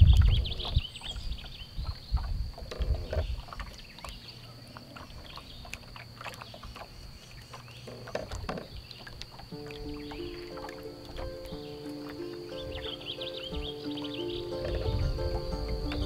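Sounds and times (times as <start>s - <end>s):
wind rumbling on microphone: 0.0s - 4.3s, 7.8s - 16.0s
faint bird chirps: 0.0s - 16.0s
thin high whine: 9.5s - 16.0s.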